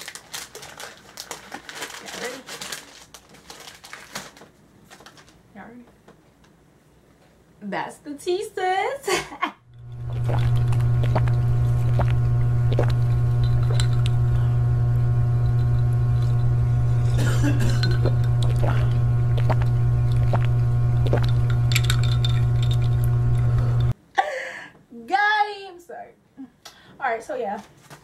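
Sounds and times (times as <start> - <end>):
loud steady low hum: 9.6 - 24.0
sipping from glasses: 9.8 - 14.6, 15.4 - 23.9.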